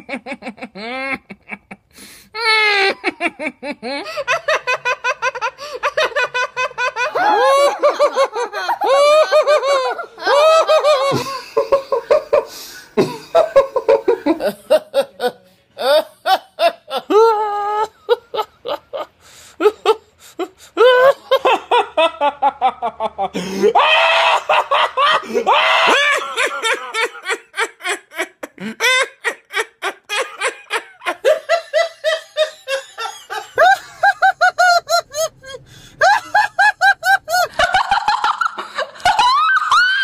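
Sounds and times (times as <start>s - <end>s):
people laughing loudly: 0.0s - 20.0s, 20.8s - 40.0s.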